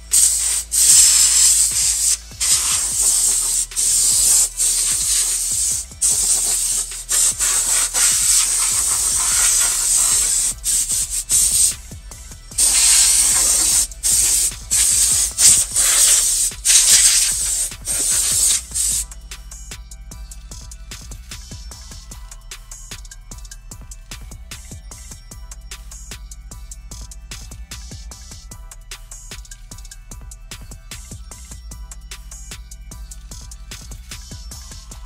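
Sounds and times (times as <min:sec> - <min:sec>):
power tool grinding metal: 0:00.0 - 0:11.9, 0:12.6 - 0:19.0.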